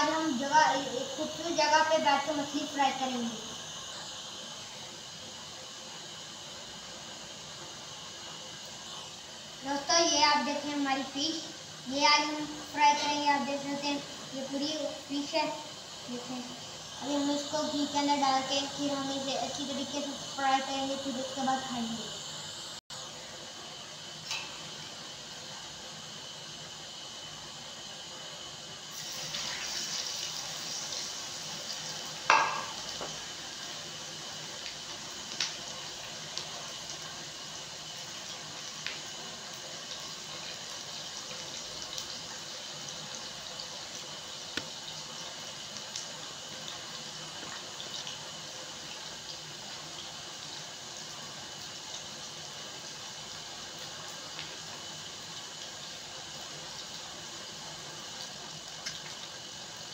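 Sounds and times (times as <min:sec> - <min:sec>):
fish sizzling in hot oil: 0:00.0 - 0:59.9
sharp knock: 0:32.3 - 0:32.8.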